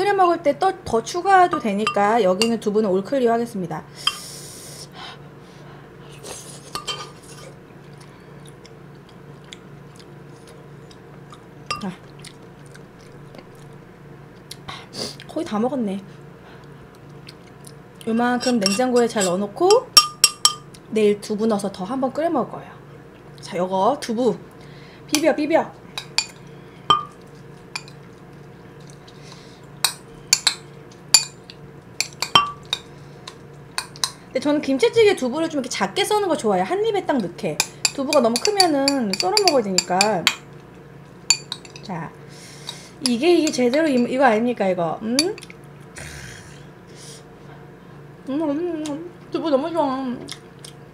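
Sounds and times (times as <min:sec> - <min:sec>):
soft chewing: 0:06.0 - 0:15.4, 0:16.5 - 0:18.6, 0:27.1 - 0:29.8, 0:50.2 - 0:50.8
metal spoon clinking on pot: 0:18.4 - 0:19.4, 0:20.0 - 0:20.6, 0:32.0 - 0:32.8, 0:37.6 - 0:40.4, 0:41.3 - 0:41.8, 0:43.0 - 0:44.1.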